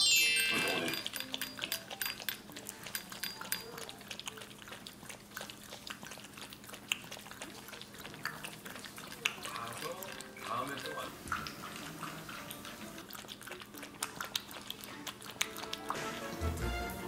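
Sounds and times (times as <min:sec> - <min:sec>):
puppy lapping water: 0:00.8 - 0:17.0.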